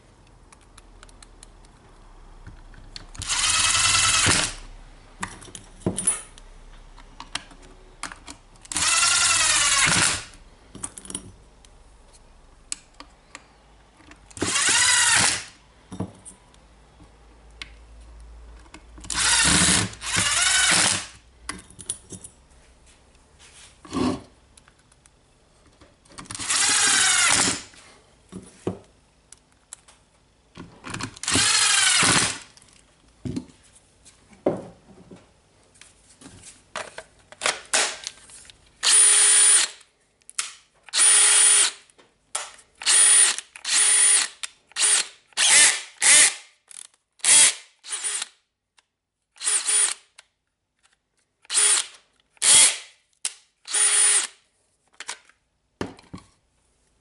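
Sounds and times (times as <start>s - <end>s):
cordless drill motor spinning: 3.2s - 4.6s, 8.7s - 10.3s, 14.4s - 15.5s, 19.1s - 21.2s, 26.4s - 27.7s, 31.2s - 32.4s, 38.8s - 39.8s, 40.9s - 41.7s, 42.8s - 46.3s, 47.2s - 48.3s, 49.4s - 50.0s, 51.5s - 52.8s, 53.7s - 54.3s.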